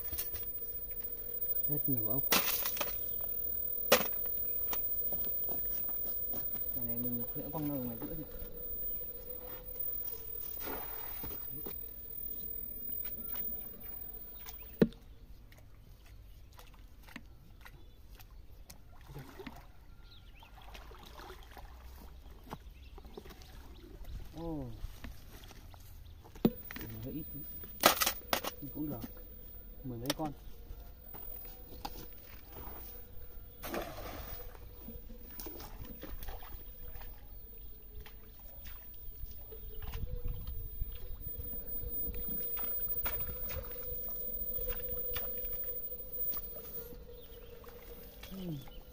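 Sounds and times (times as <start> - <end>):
small water sounds: 0.0 - 48.9
water sloshing and dripping: 18.1 - 24.0, 33.6 - 48.9
rake splashing into pond: 33.6 - 34.3.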